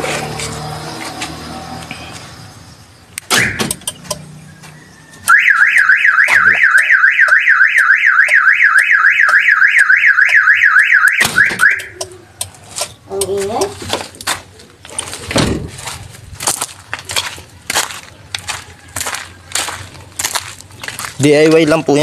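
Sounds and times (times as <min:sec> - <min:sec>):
warbling car alarm siren: 0:04.9 - 0:12.2.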